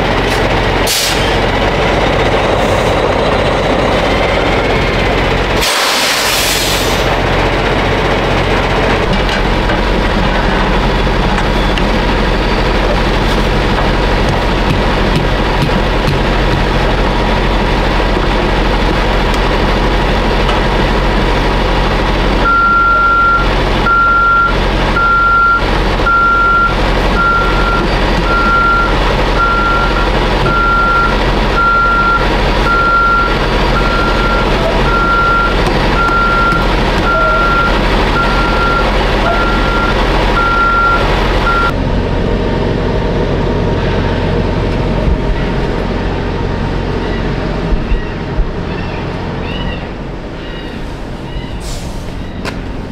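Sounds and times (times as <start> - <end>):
diesel truck engine idling: 0.0 - 52.9
reversing alarm beeping: 22.4 - 41.8.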